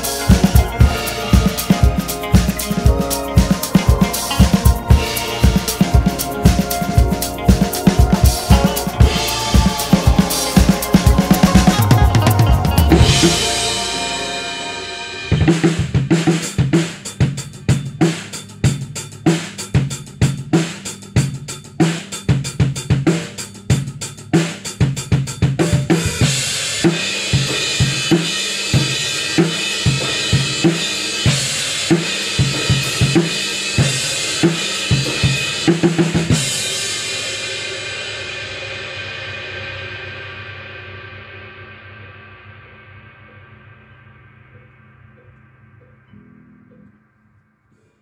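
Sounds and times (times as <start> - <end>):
cymbals ringing: 0.0 - 16.7
drum kit groove: 0.0 - 37.7.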